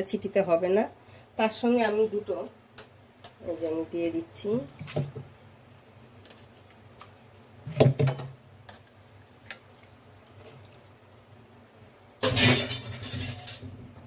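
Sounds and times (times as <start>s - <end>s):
small clicks and wet knocks: 6.2s - 7.6s, 8.6s - 10.9s.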